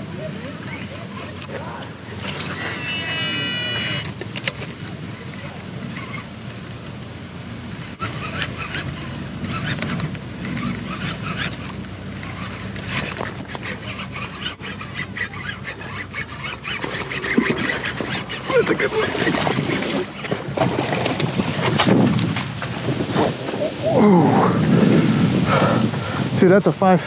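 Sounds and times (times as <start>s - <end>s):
fishing reel cranking: 0.3s - 6.8s, 7.7s - 20.3s.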